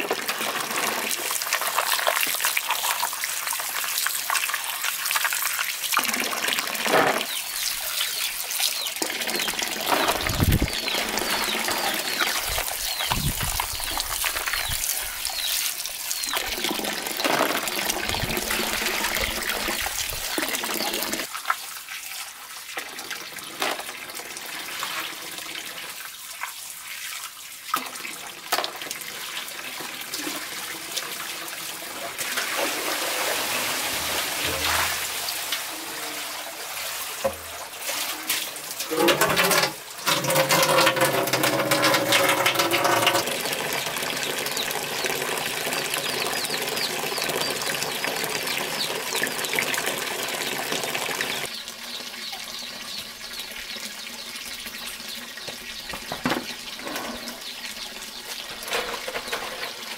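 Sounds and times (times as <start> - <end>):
water pouring into metal basin: 0.0 - 21.5, 27.7 - 51.6.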